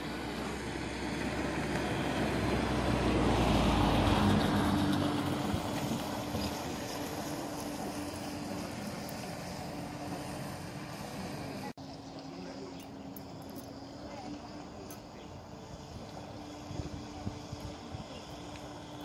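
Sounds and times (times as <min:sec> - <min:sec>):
wind rumble on microphone: 0:04.3 - 0:08.0, 0:15.5 - 0:19.0
electric boat motor whine: 0:05.3 - 0:19.0.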